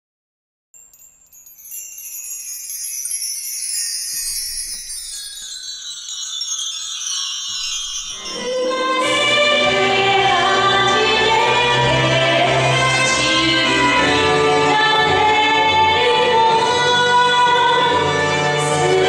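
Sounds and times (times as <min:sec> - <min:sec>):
shimmering bell-like chimes: 0:00.8 - 0:10.3.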